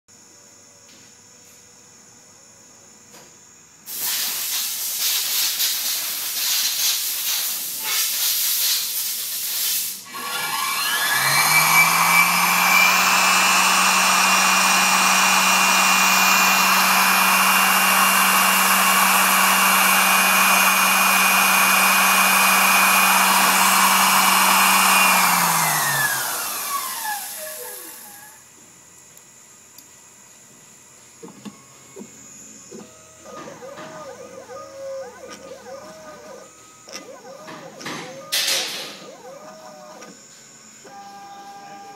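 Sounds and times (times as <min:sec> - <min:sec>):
loud hiss: 0:03.9 - 0:10.1
motor whining and whirring: 0:10.1 - 0:28.6, 0:31.2 - 0:41.9.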